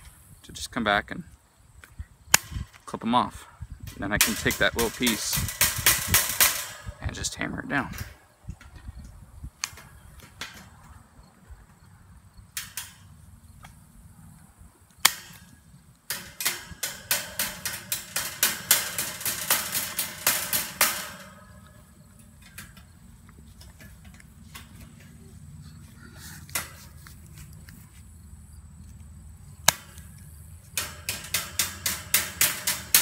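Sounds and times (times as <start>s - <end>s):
ringing metal taps: 3.9s - 8.9s, 15.0s - 25.3s, 30.7s - 33.0s.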